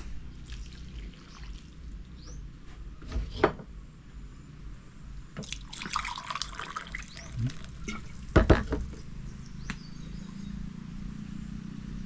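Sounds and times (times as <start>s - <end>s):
water trickling into bowl: 0.4s - 2.2s, 5.4s - 8.4s.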